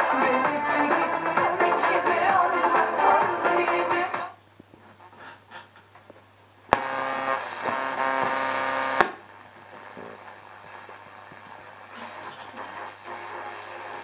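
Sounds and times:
radio tuning noise: 0:00.0 - 0:05.6, 0:06.7 - 0:14.0
low hiss: 0:00.0 - 0:14.0
radio click: 0:06.7 - 0:13.1
held tones from radio: 0:11.4 - 0:14.0.

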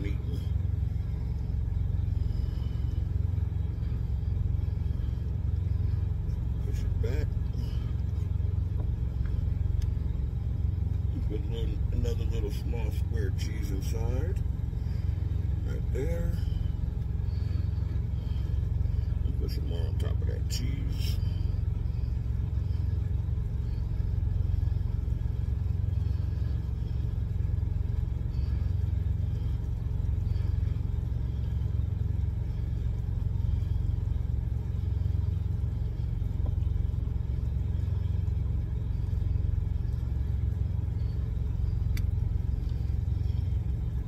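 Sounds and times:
truck engine idling: 0:00.0 - 0:44.0.

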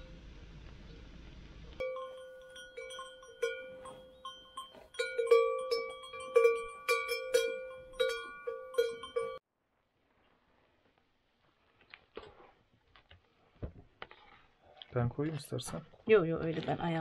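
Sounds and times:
cow bell ringing: 0:01.8 - 0:09.4.

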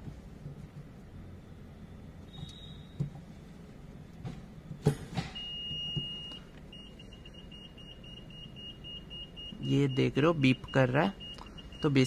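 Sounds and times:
rapid high parking beeps: 0:02.3 - 0:03.0, 0:05.4 - 0:12.0
steady electronic warning tone: 0:05.4 - 0:12.0.

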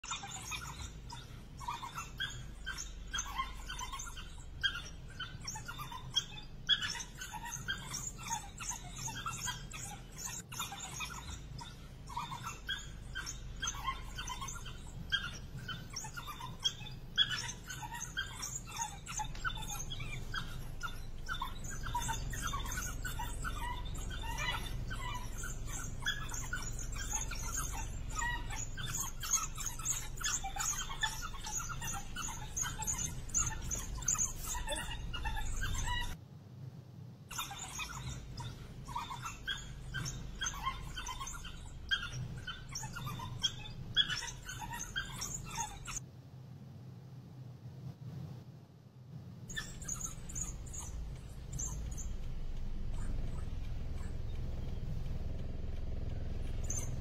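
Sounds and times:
wild dogs chirping: 0:00.0 - 0:36.2, 0:37.3 - 0:46.0, 0:49.5 - 0:57.0
low steady rumble: 0:00.7 - 0:36.2, 0:49.1 - 0:57.0.

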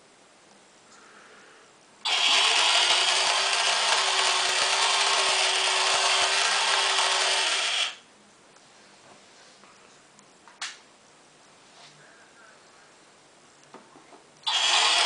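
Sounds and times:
small electric motor whining: 0:02.0 - 0:08.0, 0:14.4 - 0:15.0.

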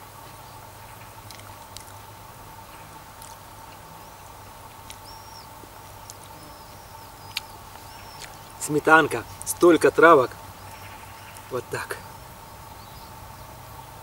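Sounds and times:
insect drone: 0:00.0 - 0:14.0
bird chirps: 0:04.0 - 0:13.6.

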